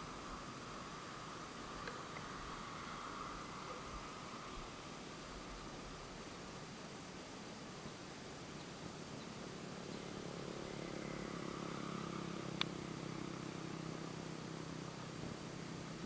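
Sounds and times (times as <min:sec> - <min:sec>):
faint low engine hum: 0:00.0 - 0:16.0.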